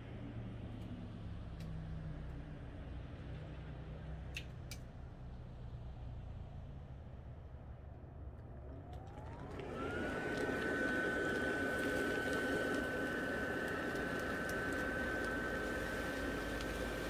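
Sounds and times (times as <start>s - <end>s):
blower fan motor whine: 8.6s - 17.0s.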